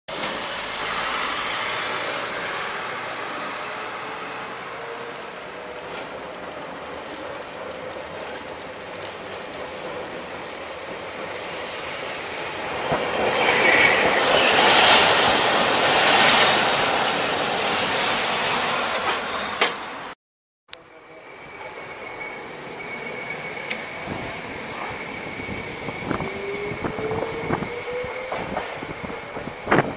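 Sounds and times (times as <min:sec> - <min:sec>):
tram running on street track: 0:00.1 - 0:20.2, 0:20.8 - 0:29.9
wheel squeal: 0:21.3 - 0:29.1.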